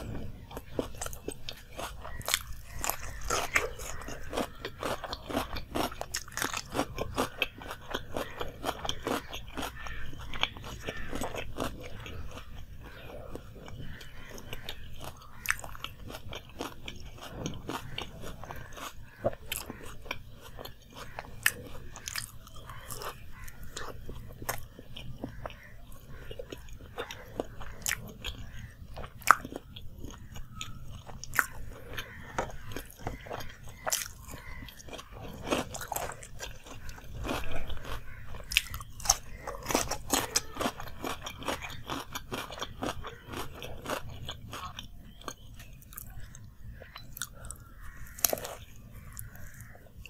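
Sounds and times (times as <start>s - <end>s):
wet chewing: 0.0s - 50.0s
crisp crunching bites: 0.5s - 25.7s, 26.6s - 46.4s.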